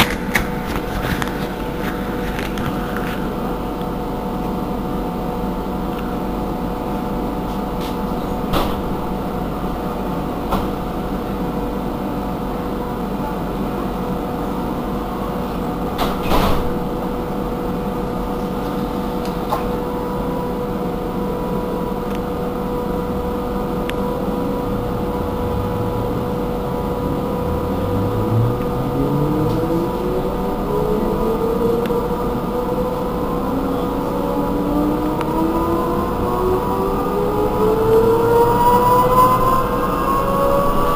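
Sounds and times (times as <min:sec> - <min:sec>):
trolleybus electrical hum and whine: 0:00.0 - 0:40.9
stepped whine climbing in pitch: 0:19.8 - 0:40.9.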